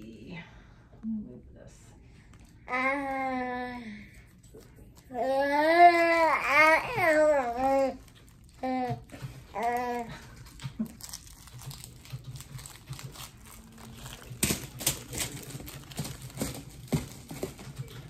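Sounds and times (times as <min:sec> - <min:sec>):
paper liner crinkling: 0:06.0 - 0:18.0.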